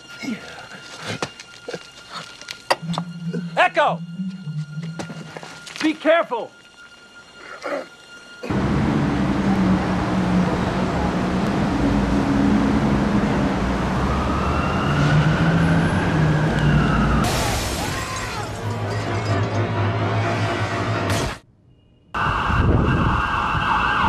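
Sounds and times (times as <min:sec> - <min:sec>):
soundtrack music: 0:02.4 - 0:21.4
long gliding tone: 0:08.0 - 0:17.3
window glass shattering: 0:17.3 - 0:19.0.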